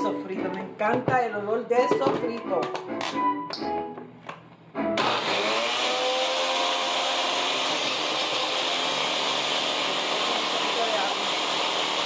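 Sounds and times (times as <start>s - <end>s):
blender chopping vegetables: 5.0s - 12.0s.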